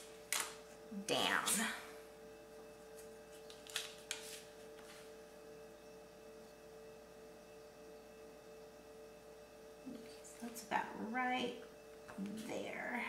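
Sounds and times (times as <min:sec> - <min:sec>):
faint steady hum: 0:00.0 - 0:13.0
paper rustle: 0:03.0 - 0:05.1.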